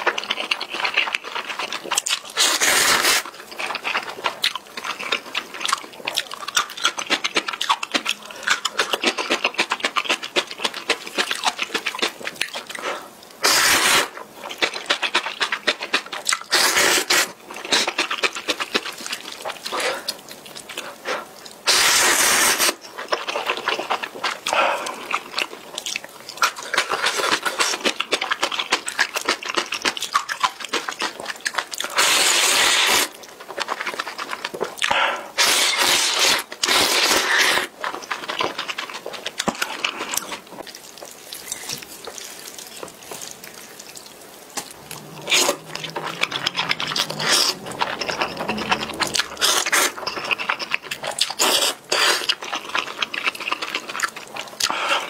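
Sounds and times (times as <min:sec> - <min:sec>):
chewing with lip smacks: 0:00.0 - 0:55.0
noodle slurping: 0:00.5 - 0:05.6, 0:12.5 - 0:25.3, 0:31.9 - 0:55.0.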